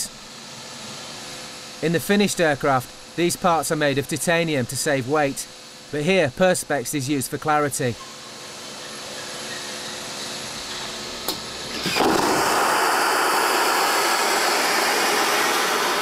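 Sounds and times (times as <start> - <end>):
steady hum: 0.0 - 16.0
vacuum toilet air rush: 8.6 - 16.0.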